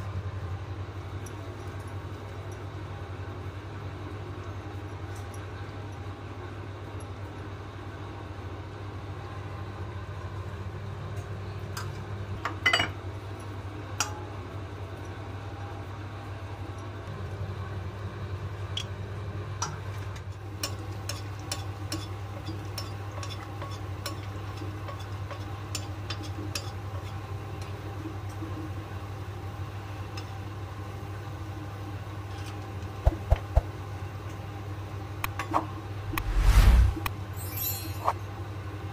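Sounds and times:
steady low hum: 35.9s - 37.2s.

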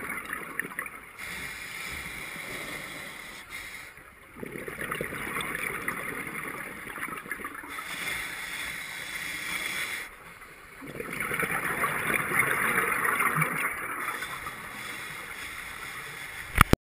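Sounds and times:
gurgling exhaled bubbles: 0.0s - 3.4s, 4.3s - 10.1s, 10.7s - 15.5s
diver breathing through regulator: 1.2s - 4.0s, 7.6s - 10.6s, 14.1s - 16.5s.

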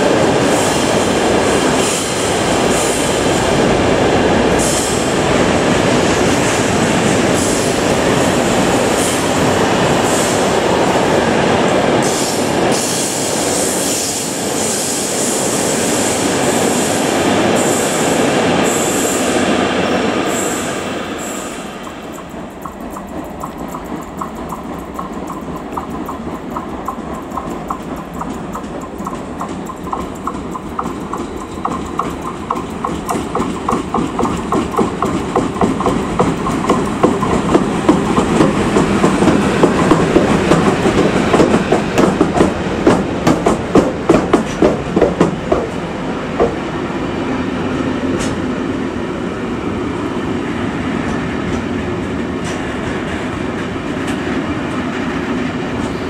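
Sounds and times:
train wheels rumbling on rails: 0.0s - 56.0s
fast regular clicking: 21.8s - 45.8s.

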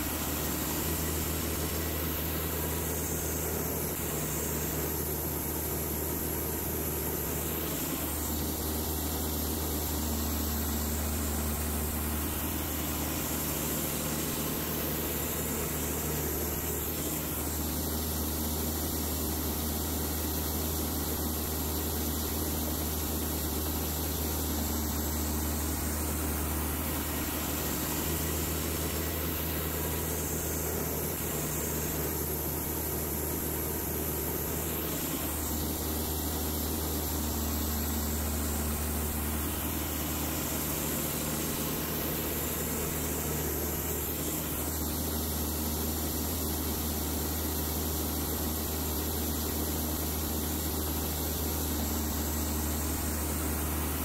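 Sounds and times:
diesel engine humming: 22.6s - 45.2s.

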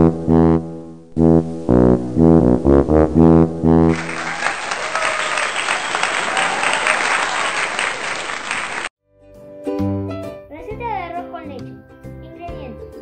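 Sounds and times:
brass music: 0.0s - 5.0s
crowd applauding: 3.9s - 8.9s.

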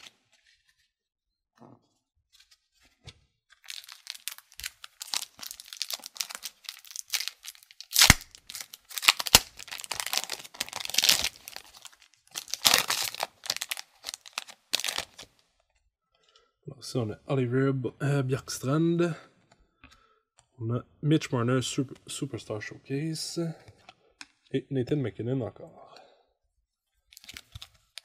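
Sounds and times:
foil wrapper crinkling: 3.6s - 15.3s, 27.1s - 28.0s
foil wrapper ripping: 3.6s - 15.3s.

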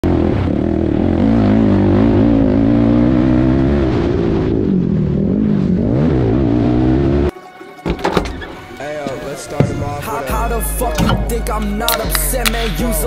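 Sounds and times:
quad engine running hard: 0.0s - 3.8s.

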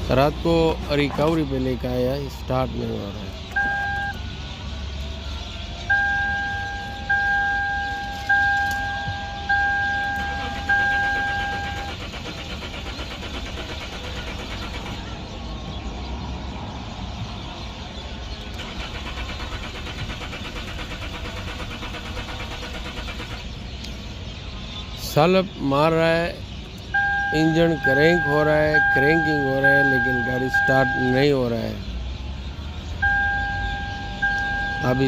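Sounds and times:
dashboard warning chime: 3.6s - 4.2s, 5.9s - 12.1s, 27.0s - 31.4s, 33.0s - 35.0s
starter motor cranking engine: 9.5s - 15.2s, 18.4s - 23.8s.

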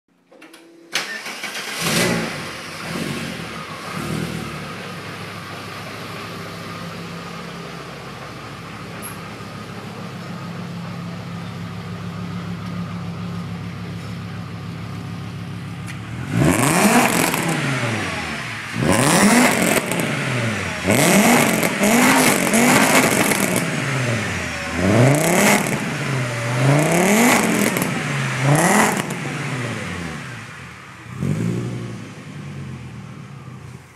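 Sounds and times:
car engine revving: 1.2s - 8.1s, 15.3s - 33.7s
car engine idling: 2.3s - 33.9s.

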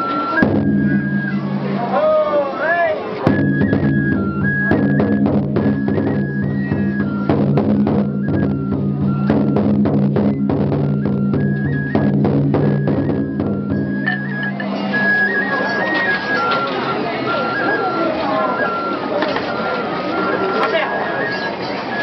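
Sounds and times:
large drum beats: 0.0s - 2.0s, 3.0s - 16.6s
high flute melody: 0.0s - 22.0s.

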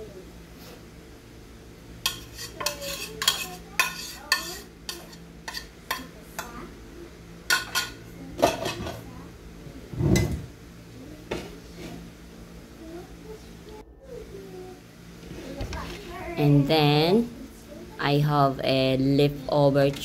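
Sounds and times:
metal spoon scraping plastic bowl: 2.1s - 5.7s.

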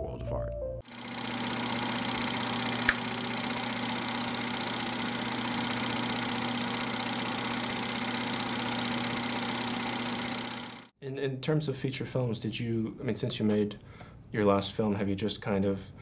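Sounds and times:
motor hum: 0.8s - 10.9s
film projector chattering: 0.9s - 10.9s
sharp click: 2.8s - 3.1s.

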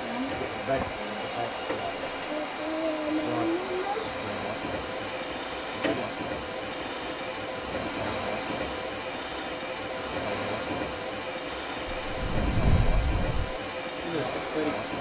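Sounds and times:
low rumble: 11.9s - 13.6s.

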